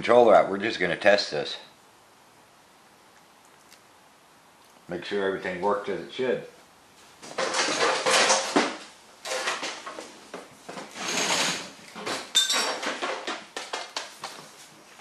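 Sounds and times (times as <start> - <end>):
hard objects clattering and rustling: 7.2 - 15.0
ringing metallic clink: 12.4 - 12.7.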